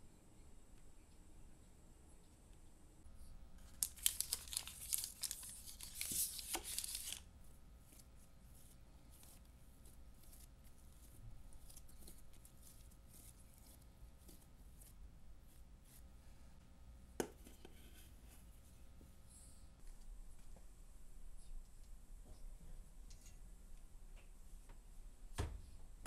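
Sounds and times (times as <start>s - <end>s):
bread dough tearing: 3.6s - 16.1s
dough rubbing on metal tray: 7.8s - 16.2s.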